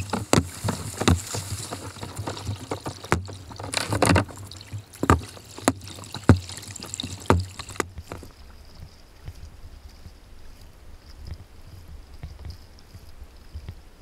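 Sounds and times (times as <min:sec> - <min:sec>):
paddle splashing in water: 0:00.0 - 0:08.4
running water: 0:00.0 - 0:09.4.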